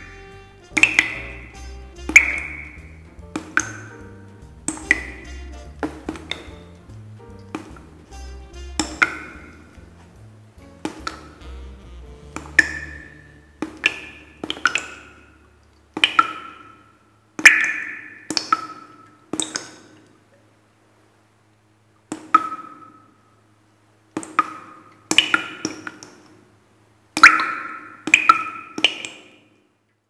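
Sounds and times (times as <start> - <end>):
bright struck pinging notes: 10.7 - 15.3.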